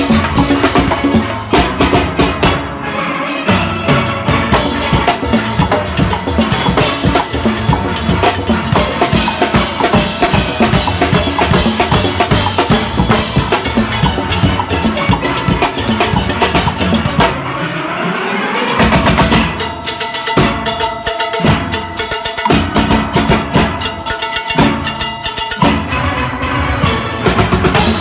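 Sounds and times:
drum kits with toms and cymbals: 0.0 - 2.7, 3.5 - 17.4, 18.8 - 28.0
steel pans: 19.7 - 25.7.

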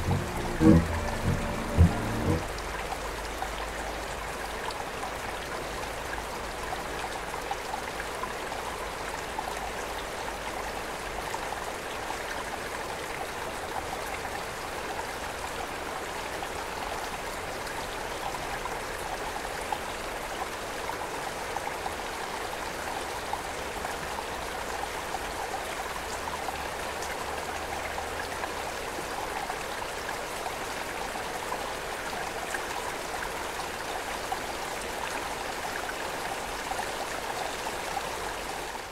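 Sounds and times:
river flowing: 0.0 - 3.2.

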